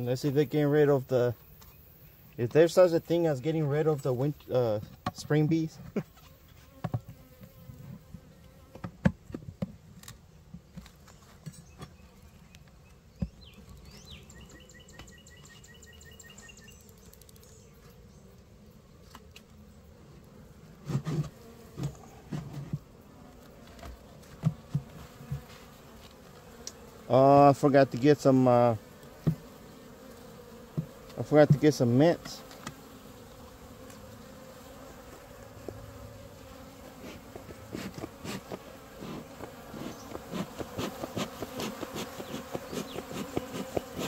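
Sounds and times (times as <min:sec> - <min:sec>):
bees buzzing: 0:11.7 - 0:44.0
hive tool clicking on wood: 0:37.0 - 0:44.0.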